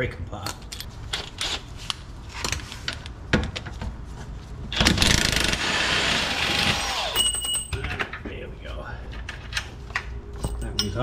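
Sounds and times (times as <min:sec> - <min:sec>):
impact wrench whine: 0:04.7 - 0:07.6
impact wrench rapid pulses: 0:04.8 - 0:07.2.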